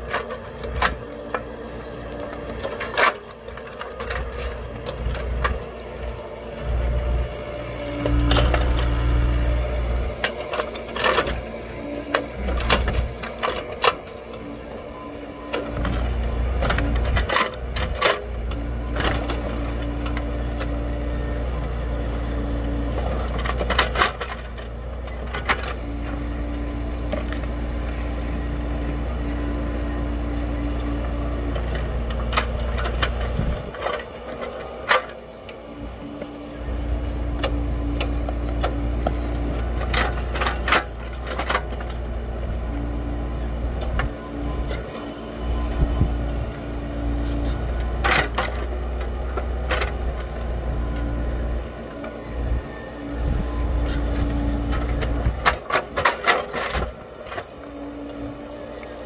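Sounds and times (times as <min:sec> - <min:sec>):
excavator diesel engine under load: 0:00.0 - 0:59.0
hydraulic whine: 0:00.0 - 0:59.0.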